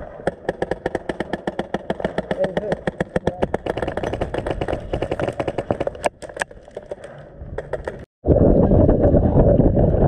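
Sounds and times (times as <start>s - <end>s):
airsoft gunfire: 0.2s - 5.9s.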